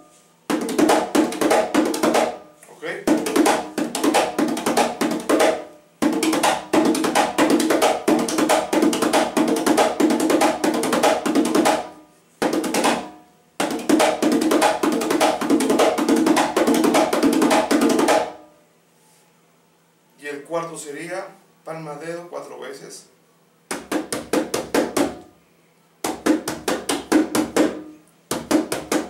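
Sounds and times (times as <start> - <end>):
conga played with hands: 0.0 - 18.5, 23.7 - 25.4, 26.0 - 29.0.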